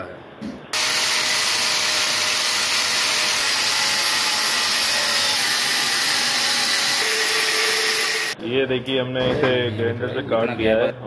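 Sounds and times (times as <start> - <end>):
angle grinder cutting steel: 0.8 - 8.4.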